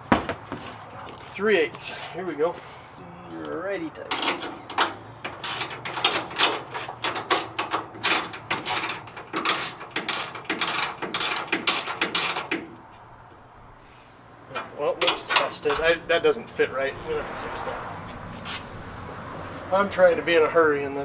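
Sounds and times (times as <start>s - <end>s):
hand ratchet clicking: 4.7s - 12.7s.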